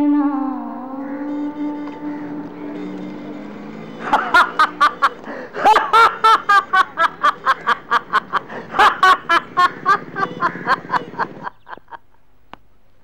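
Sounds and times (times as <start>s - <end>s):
man laughing loudly: 3.9s - 12.1s.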